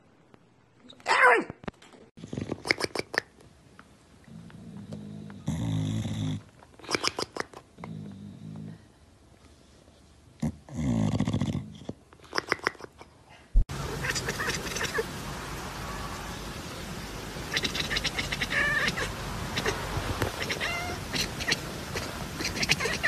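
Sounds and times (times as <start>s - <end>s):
steady hiss: 13.6s - 23.0s
animal cry: 13.8s - 15.1s, 17.5s - 23.0s
sharp animal calls: 13.8s - 15.1s, 17.4s - 23.0s.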